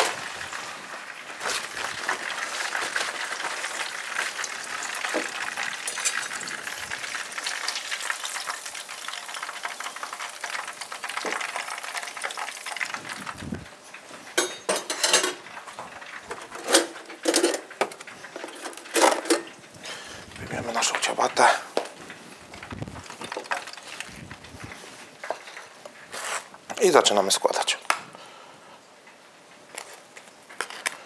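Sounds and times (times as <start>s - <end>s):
fish sizzling in hot fat: 0.0s - 27.0s
dishes knocking and clattering: 14.3s - 19.5s.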